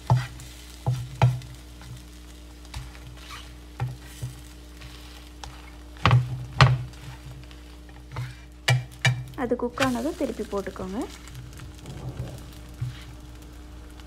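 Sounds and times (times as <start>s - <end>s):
flatbread sizzling in oil: 0.0s - 14.0s
spatula knocking against pan: 8.6s - 9.3s.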